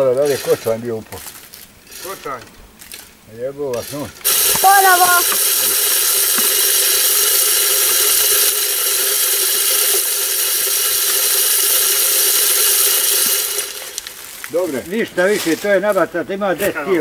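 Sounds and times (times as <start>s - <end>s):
electric motor humming: 3.8s - 14.3s
grain scattering with a hiss: 3.8s - 16.7s.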